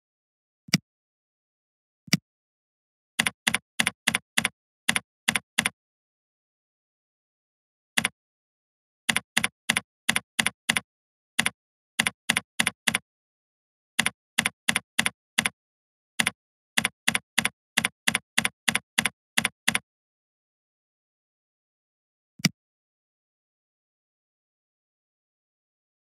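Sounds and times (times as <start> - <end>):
typing on computer keyboard: 3.2 - 5.8, 9.1 - 13.0, 14.0 - 15.6, 16.2 - 19.8.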